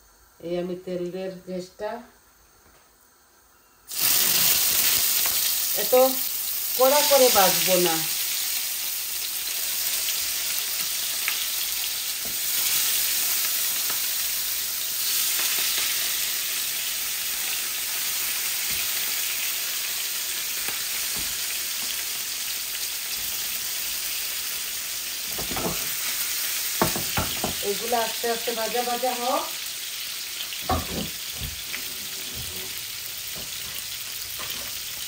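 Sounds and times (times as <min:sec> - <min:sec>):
oil crackling: 0:03.9 - 0:14.1
fish sizzling in hot oil: 0:03.9 - 0:35.0.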